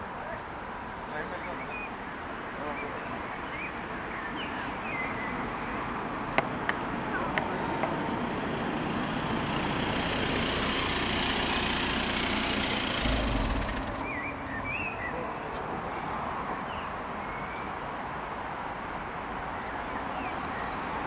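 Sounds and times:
car approaching on road: 0:01.9 - 0:18.0
small birds chirping: 0:11.6 - 0:17.8.

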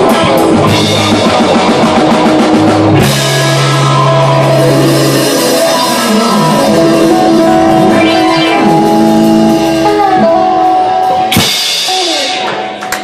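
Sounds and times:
bending guitar notes: 0:00.0 - 0:13.0
blues band playing: 0:00.0 - 0:13.0.

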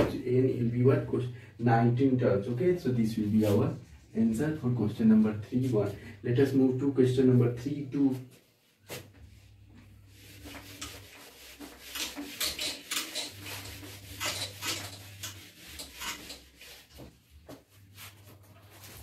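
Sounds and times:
eraser scrubbing a whiteboard: 0:08.5 - 0:19.0.

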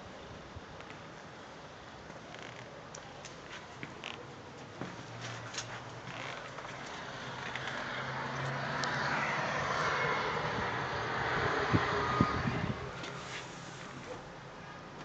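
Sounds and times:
broad rushing noise: 0:05.0 - 0:14.5.

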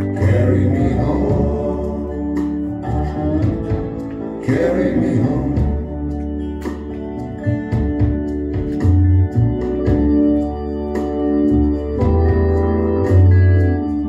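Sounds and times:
blues organ chords over bass and drums: 0:00.0 - 0:14.0.

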